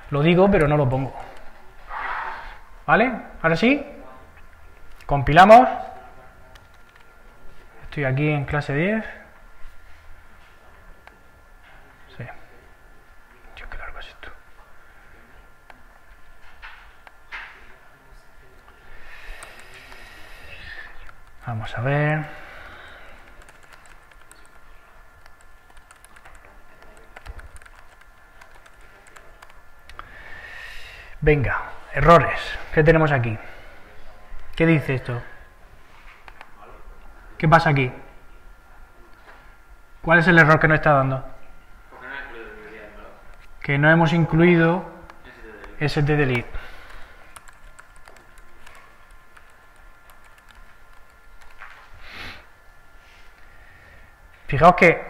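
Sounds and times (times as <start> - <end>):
faint high hum: 0.0 - 55.0
keyboard typing clicks: 6.5 - 7.1, 19.4 - 20.0, 23.2 - 30.0, 36.2 - 36.5, 45.1 - 51.7.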